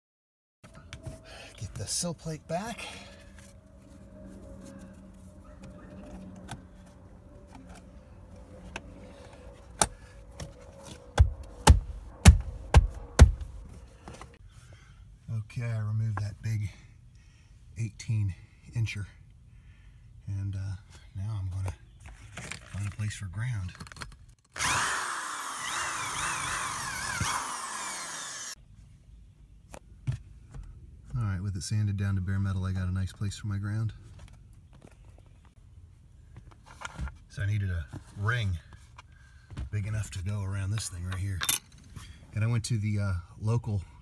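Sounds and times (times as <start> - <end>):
power drill sanding metal: 24.6 - 28.6.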